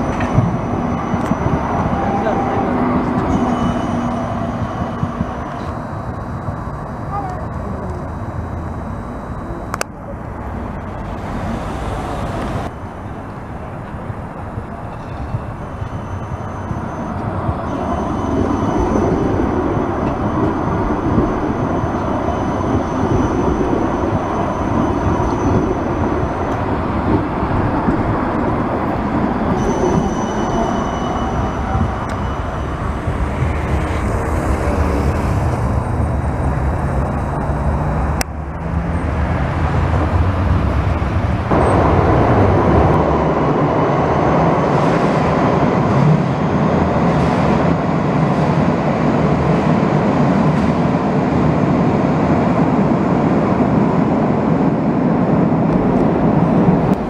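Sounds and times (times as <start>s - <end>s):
high whine: 0.0s - 38.7s
tram approaching underground rumble: 0.0s - 57.0s
tram wheels running on rails: 0.0s - 57.0s.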